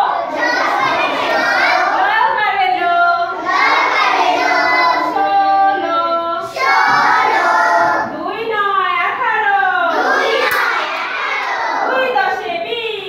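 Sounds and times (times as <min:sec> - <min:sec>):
children singing in unison: 0:00.0 - 0:02.2, 0:03.2 - 0:08.2, 0:09.9 - 0:12.3.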